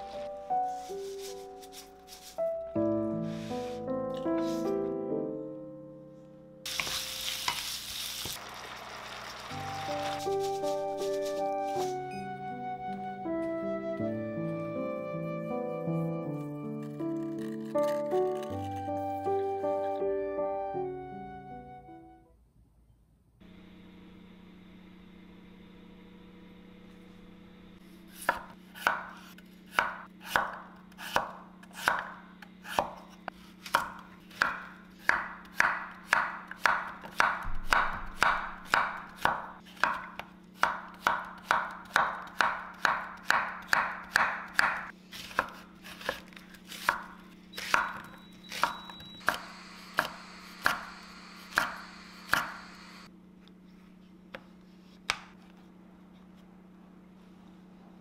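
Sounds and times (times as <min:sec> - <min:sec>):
knife chopping on wooden board: 0:28.2 - 0:52.6.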